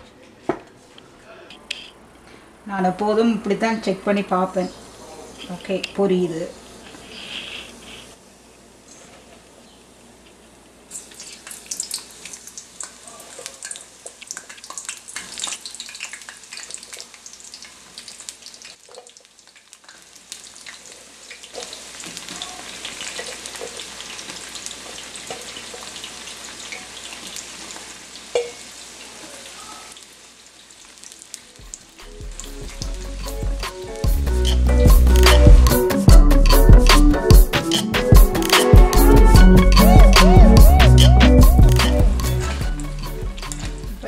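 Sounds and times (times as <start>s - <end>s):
eggplant deep-frying in hot oil: 2.6s - 34.2s
music: 32.0s - 44.0s.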